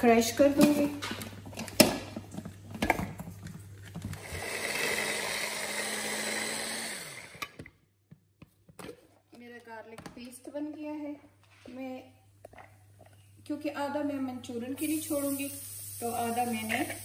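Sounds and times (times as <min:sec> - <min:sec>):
blender parts knocking: 0:03.8 - 0:09.0
hand blender motor running: 0:04.2 - 0:07.6.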